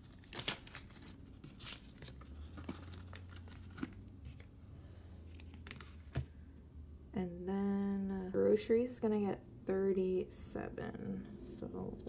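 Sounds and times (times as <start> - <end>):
paper banknotes rustling: 0.0 - 4.5, 5.3 - 6.2.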